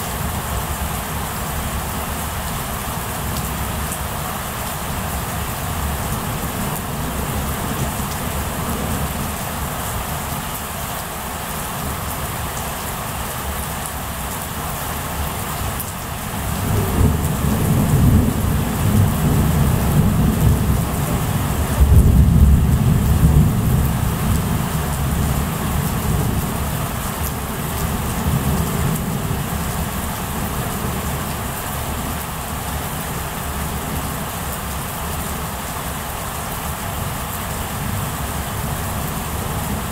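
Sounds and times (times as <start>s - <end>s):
steady rain: 0.0s - 39.9s
rolling thunder: 16.6s - 26.5s.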